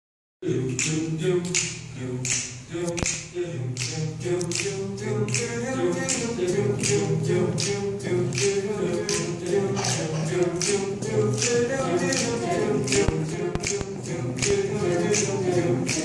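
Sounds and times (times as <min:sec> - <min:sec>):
voices singing a cappella: 0:00.4 - 0:16.0
sharp click keeping time: 0:03.8 - 0:16.0.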